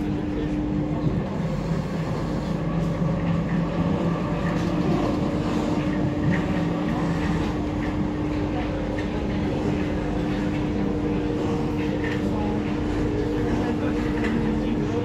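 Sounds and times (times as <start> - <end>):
train motor hum: 0.0 - 15.0
train wheels rumbling on rail: 0.0 - 15.0.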